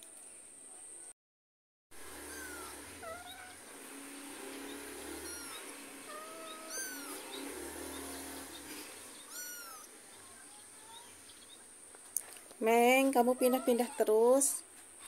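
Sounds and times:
kitten mewing: 2.2s - 3.6s, 4.9s - 7.4s, 9.2s - 11.2s, 13.2s - 14.2s.

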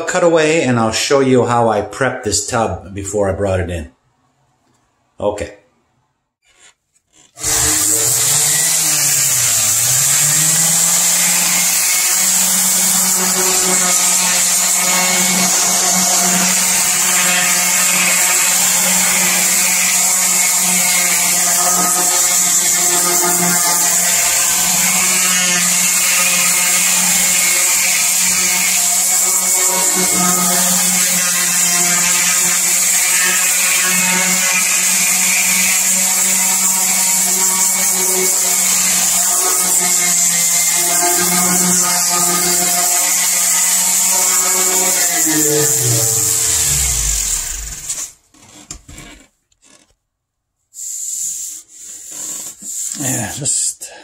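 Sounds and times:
orbital sander grinding metal: 6.4s - 48.2s.

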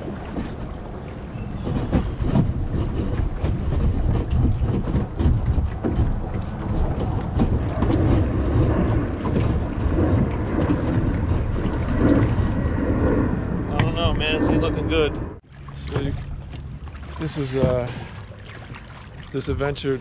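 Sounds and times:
wind rumble on microphone: 0.0s - 20.0s
footsteps splashing through water: 15.5s - 20.0s.

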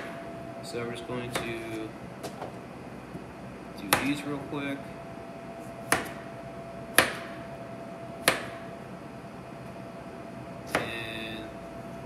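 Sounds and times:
faint hum: 0.0s - 12.0s
knife chopping on plastic board: 1.3s - 1.8s, 3.8s - 4.3s, 5.8s - 6.3s, 6.9s - 7.4s, 8.2s - 8.7s, 10.7s - 11.0s.

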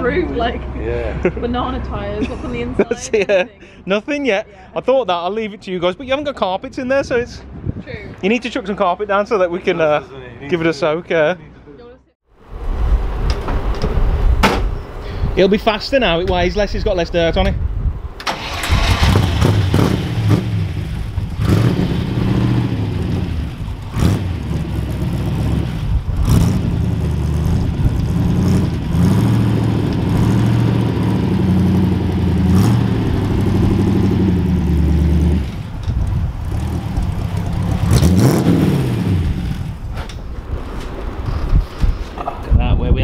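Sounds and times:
car engine revving: 18.3s - 40.0s.

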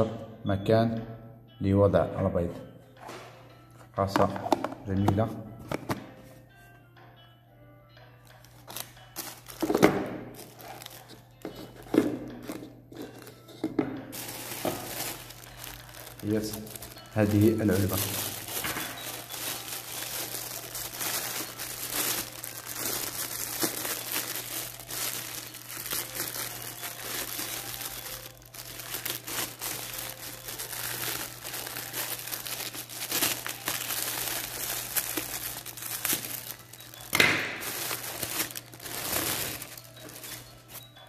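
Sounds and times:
plastic bag crinkling: 8.6s - 40.8s.

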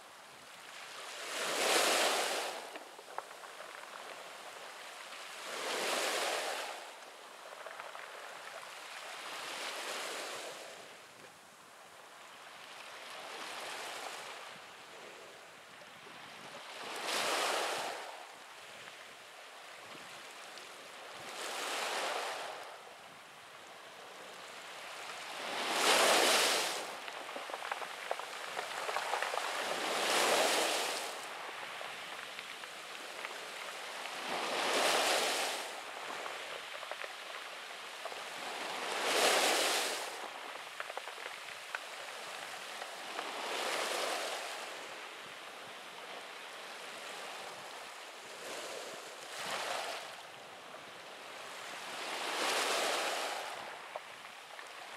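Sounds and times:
small waves breaking on pebbles: 0.0s - 11.2s, 12.2s - 14.8s, 15.6s - 54.9s.

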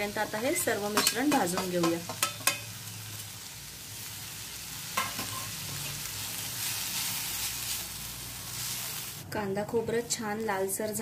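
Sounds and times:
onions sizzling in oil: 0.0s - 11.0s
spoon clinking on pan: 1.0s - 2.7s.

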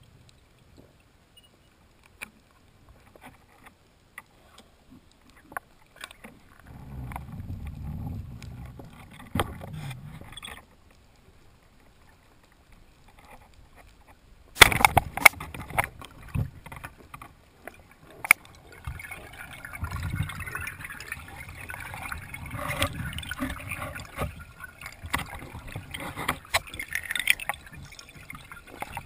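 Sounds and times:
low rumbling water noise: 0.0s - 29.0s
sharp underwater clicks: 13.0s - 29.0s.

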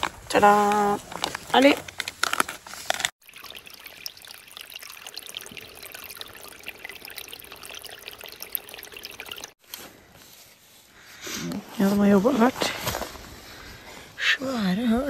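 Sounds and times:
water trickling and splashing: 0.3s - 9.6s.

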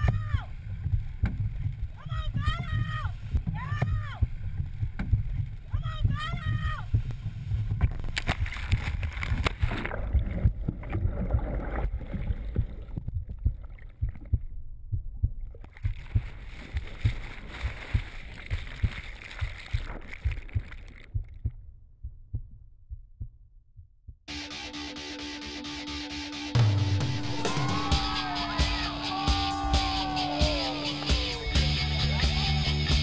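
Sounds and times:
low thumps: 0.0s - 8.6s
music: 24.3s - 33.0s.

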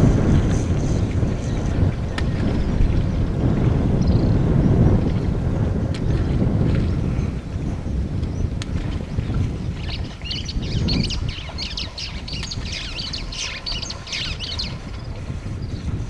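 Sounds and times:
wind rumble on microphone: 0.0s - 16.0s
birds chirping: 9.6s - 15.9s.

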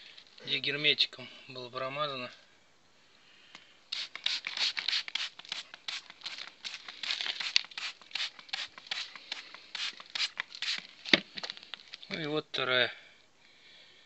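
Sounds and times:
spray bottle squirting: 3.9s - 11.5s.

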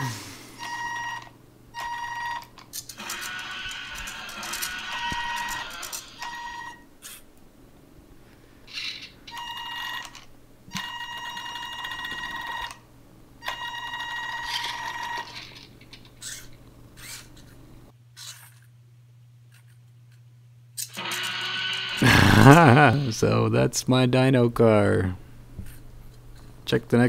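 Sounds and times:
small electric motor whining: 2.9s - 6.4s, 20.8s - 23.1s.

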